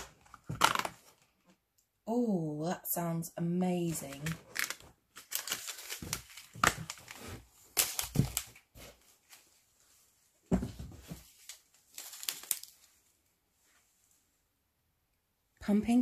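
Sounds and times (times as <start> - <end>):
paper and cardboard rustling: 3.8 - 9.8, 10.5 - 13.0.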